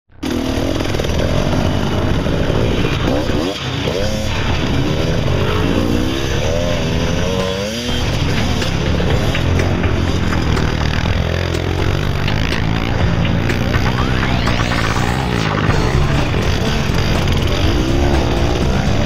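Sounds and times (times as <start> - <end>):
dirt bike engines revving: 0.2 - 19.0.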